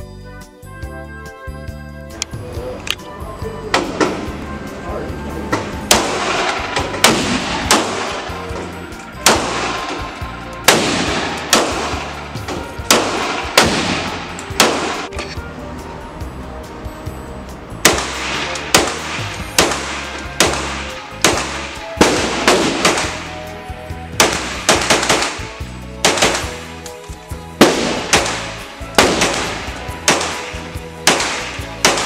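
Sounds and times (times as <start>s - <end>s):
background music: 0.0s - 32.0s
gunshots echoing indoors: 5.8s - 15.1s, 17.8s - 23.5s, 24.1s - 26.7s, 27.6s - 32.0s.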